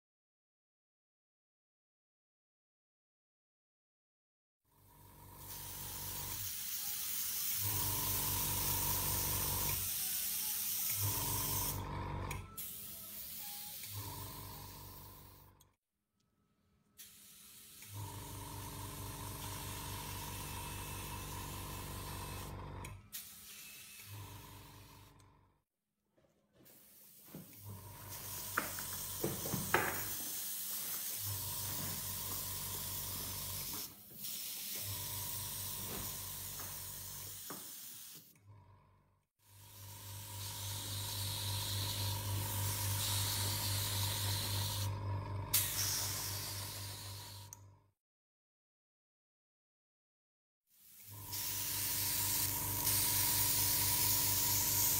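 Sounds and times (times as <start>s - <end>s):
spray gun hissing: 12.6s - 13.9s, 17.0s - 17.9s, 26.7s - 34.9s, 35.7s - 38.3s, 45.6s - 47.4s.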